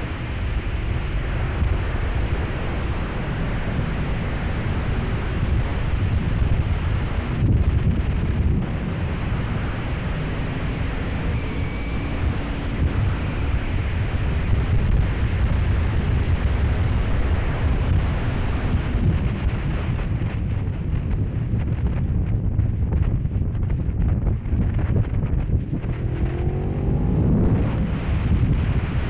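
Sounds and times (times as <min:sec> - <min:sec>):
wind buffeting microphone: 0:00.0 - 0:29.0
faint motorcycle engine: 0:24.9 - 0:29.0.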